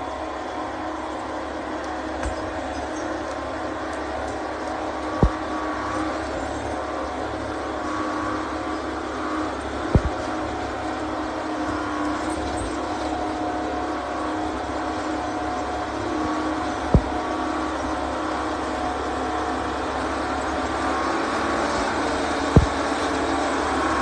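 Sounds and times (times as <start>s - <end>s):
diesel engine running: 0.0s - 24.0s
sharp thump: 5.2s - 5.4s, 10.0s - 10.2s, 16.9s - 17.2s, 22.6s - 22.8s.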